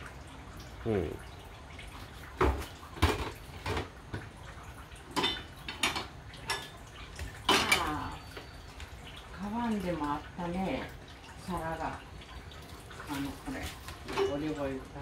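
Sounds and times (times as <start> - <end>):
pots and dishes clinking: 2.4 - 4.4, 5.0 - 8.9, 13.0 - 15.0.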